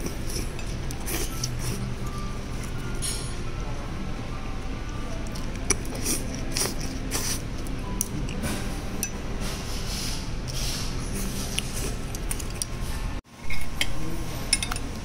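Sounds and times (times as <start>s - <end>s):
dishes and cutlery clinking: 0.0s - 3.5s, 10.6s - 15.0s
low restaurant hum: 0.0s - 15.0s.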